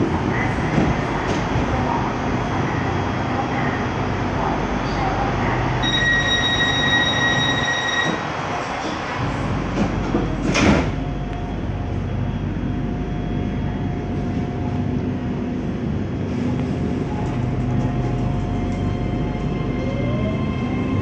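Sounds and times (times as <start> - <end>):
train running with faint hum: 0.0 - 21.0
train doors shutting with a thud: 5.8 - 11.3.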